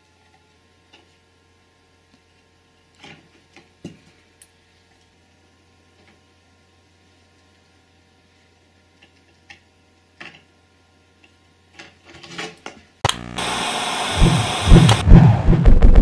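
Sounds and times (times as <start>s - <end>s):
loud steady hiss: 13.1s - 16.0s
heavy thumps: 14.1s - 16.0s.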